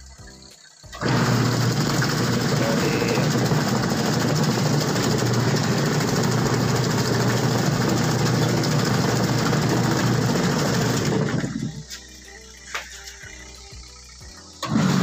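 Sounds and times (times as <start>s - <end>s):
washing machine motor hum: 0.9s - 15.0s
water churning in tub: 1.0s - 11.7s.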